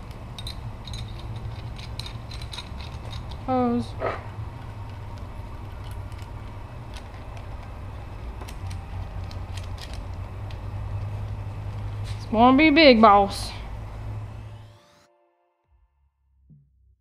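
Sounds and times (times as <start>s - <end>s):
metal fittings clicking: 0.0s - 3.5s
steady low hum: 0.0s - 15.0s.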